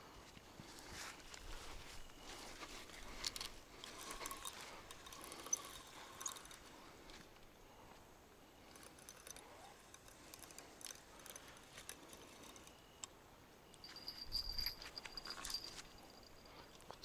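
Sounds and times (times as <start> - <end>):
fishing reel clicks and rattles: 3.2 - 6.6, 8.7 - 12.8.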